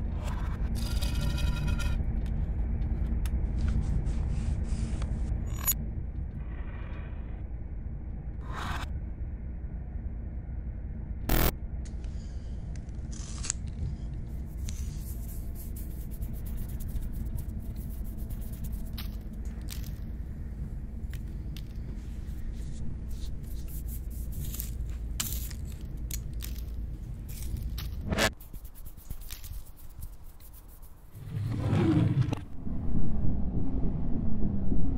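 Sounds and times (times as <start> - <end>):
low rumble: 0.0 - 28.3, 31.1 - 34.9.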